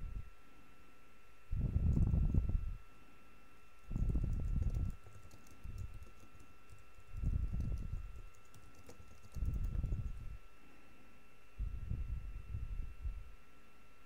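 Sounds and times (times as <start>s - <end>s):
keyboard key clicks: 7.5s - 9.8s.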